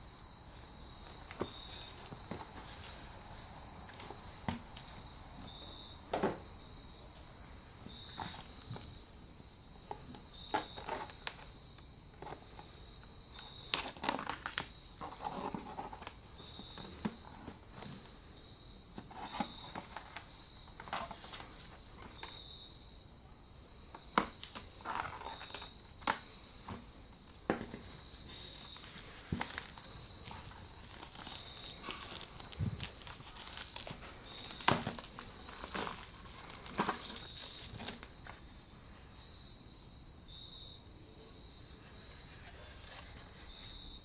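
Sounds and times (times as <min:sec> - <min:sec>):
plastic film crinkling and tearing: 0:13.7 - 0:14.7, 0:28.5 - 0:38.1.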